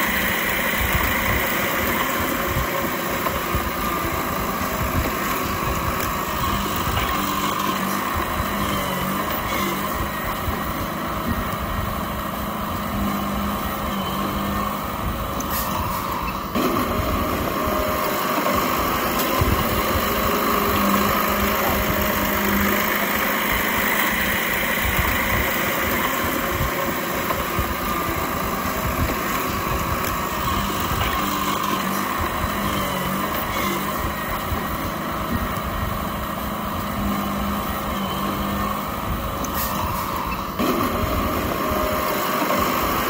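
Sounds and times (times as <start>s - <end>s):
bulldozer diesel engine running: 0.0s - 43.0s.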